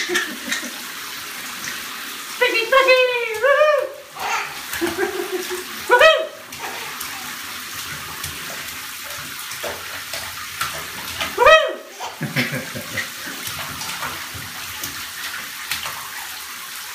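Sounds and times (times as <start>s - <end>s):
bathwater splashing: 0.0s - 16.9s
baby squealing: 4.2s - 4.6s.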